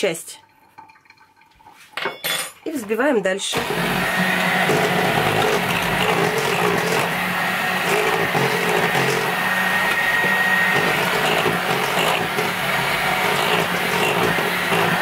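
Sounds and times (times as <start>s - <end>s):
electric hand mixer running: 3.5s - 15.0s.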